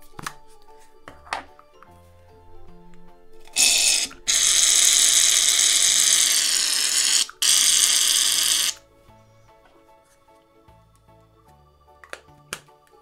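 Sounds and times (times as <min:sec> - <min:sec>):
aerosol can spraying: 0:03.5 - 0:08.8.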